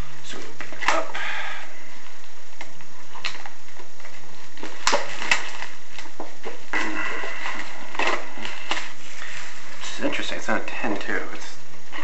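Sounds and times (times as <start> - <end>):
packaging rustling: 2.0 - 10.0.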